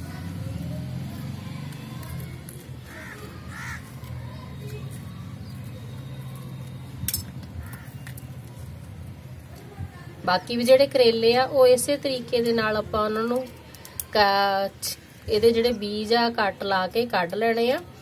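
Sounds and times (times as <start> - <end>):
crow cawing: 2.8 - 4.1, 7.6 - 8.0.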